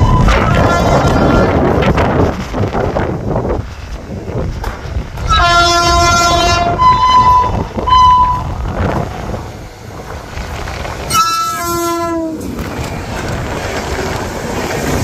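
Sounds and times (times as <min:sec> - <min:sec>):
train rumbling on rails: 0:00.0 - 0:15.0
locomotive air horn: 0:05.3 - 0:08.5, 0:11.1 - 0:12.4.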